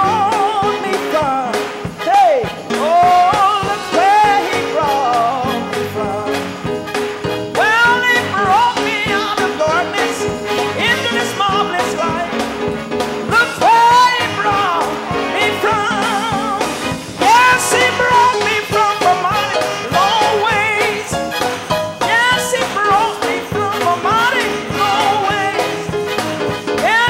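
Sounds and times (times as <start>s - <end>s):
person singing gospel: 0.0s - 6.9s, 7.5s - 27.0s
instrumental accompaniment with beat: 0.0s - 27.0s
congregation hand clapping: 0.9s - 5.2s.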